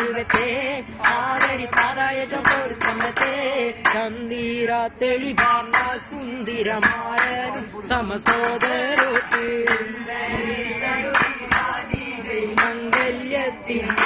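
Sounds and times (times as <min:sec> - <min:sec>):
boys singing: 0:00.0 - 0:14.0
sharp hand claps: 0:00.3 - 0:04.0, 0:08.3 - 0:10.0, 0:11.1 - 0:12.0, 0:12.6 - 0:13.2.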